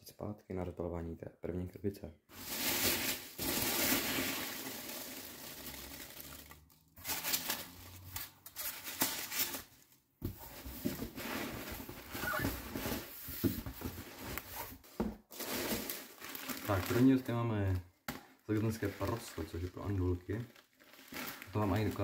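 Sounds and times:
packing peanuts rustling: 2.3s - 10.0s, 15.3s - 17.4s, 18.5s - 22.0s.

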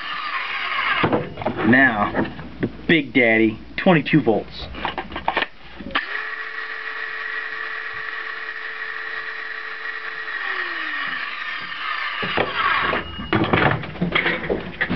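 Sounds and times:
circular saw motor whining: 0.0s - 1.4s, 6.0s - 13.5s.

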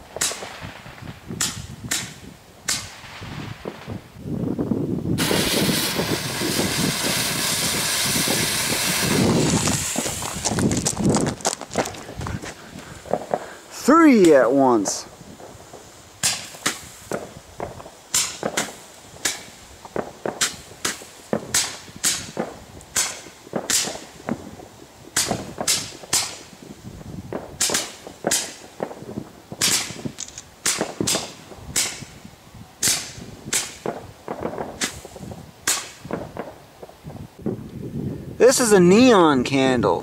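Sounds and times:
roman candles popping: 5.2s - 26.5s.

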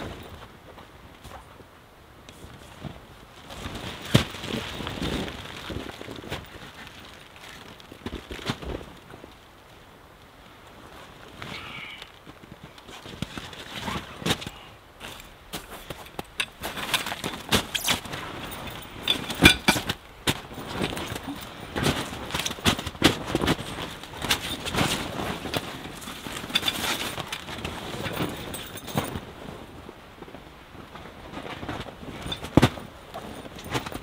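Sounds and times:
canvas tent rustling and scraping: 0.0s - 34.0s
sharp crunches and knocks: 12.8s - 29.2s, 31.4s - 34.0s.

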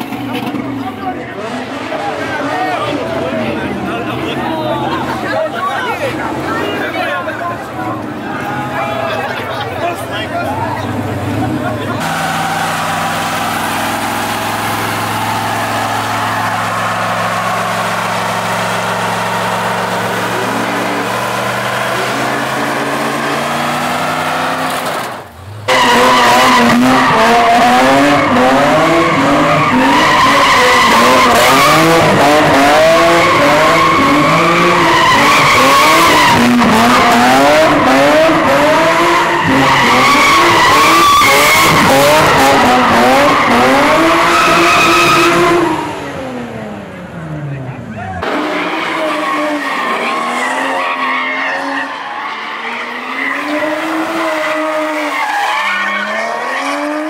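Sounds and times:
car engine revving: 0.0s - 57.0s
truck engine at high revs: 0.0s - 57.0s
tyre squeal: 48.2s - 56.7s.

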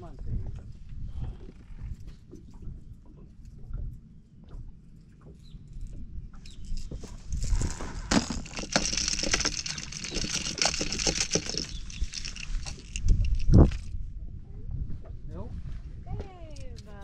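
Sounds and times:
fish thrashing and splashing: 6.8s - 13.9s.

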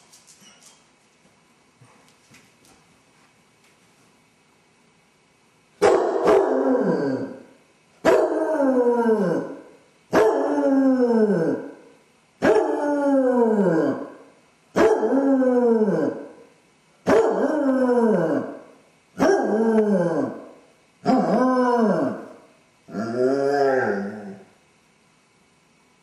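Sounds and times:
dog howling: 6.0s - 7.4s, 8.1s - 9.6s, 10.2s - 11.8s, 12.4s - 14.2s, 14.8s - 16.3s, 17.1s - 18.6s, 19.2s - 20.4s, 21.0s - 24.5s.

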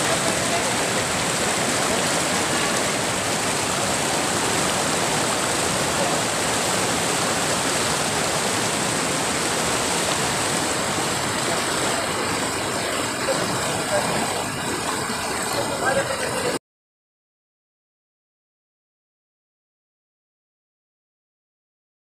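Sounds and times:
river rapids rushing over boulders: 0.0s - 16.6s.

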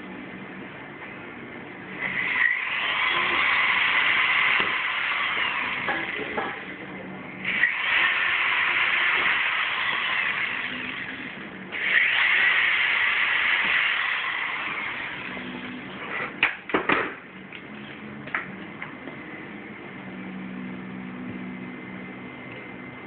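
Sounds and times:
electric drill boring metal: 1.9s - 6.8s, 7.4s - 16.1s.

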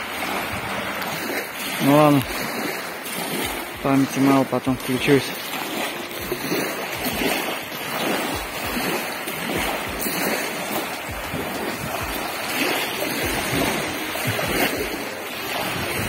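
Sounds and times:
waves lapping on pebble shore: 0.0s - 16.0s
wind rumbling on microphone: 4.7s - 16.0s.

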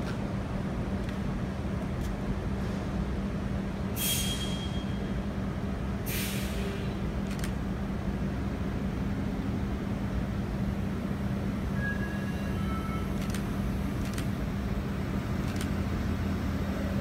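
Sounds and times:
air brakes hissing: 3.9s - 5.1s, 6.0s - 6.9s.

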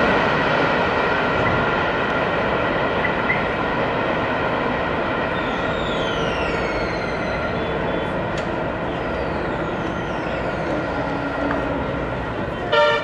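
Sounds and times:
passenger train rumbling on track: 0.0s - 13.0s.

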